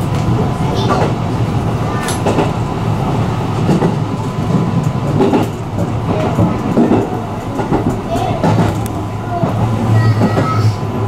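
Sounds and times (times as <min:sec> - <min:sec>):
train wheels rumbling on rails: 0:00.0 - 0:11.0
wheels clicking on track: 0:03.6 - 0:10.8.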